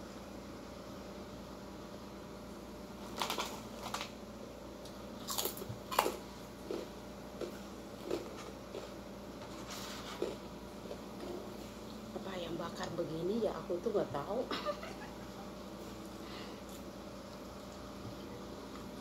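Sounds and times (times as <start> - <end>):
plastic packaging crackling: 3.0 - 4.2.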